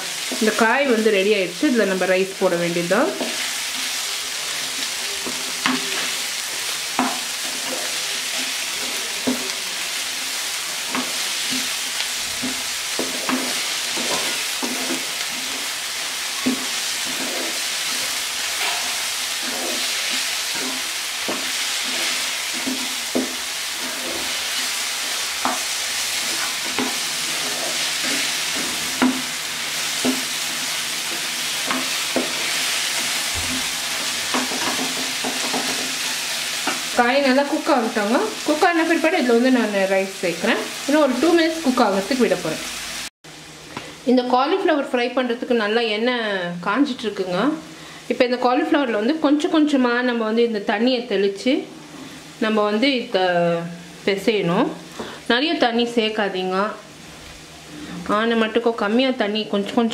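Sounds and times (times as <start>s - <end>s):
vegetables sizzling in oil: 0.0s - 59.9s
spatula scraping a pan: 4.7s - 9.7s, 10.6s - 37.0s.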